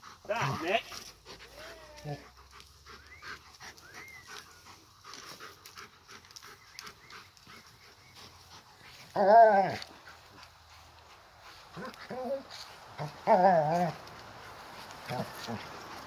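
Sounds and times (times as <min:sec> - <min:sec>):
dog panting: 0:00.0 - 0:16.0.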